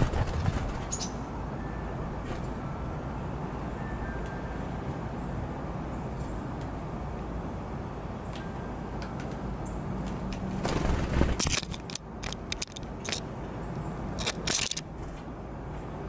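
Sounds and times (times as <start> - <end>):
birds scraping at feeder: 10.6 - 13.2, 14.2 - 14.9.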